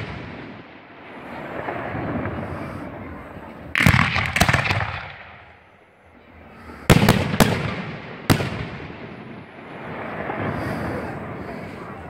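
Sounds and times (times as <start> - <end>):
firework shells bursting: 3.8 - 5.6.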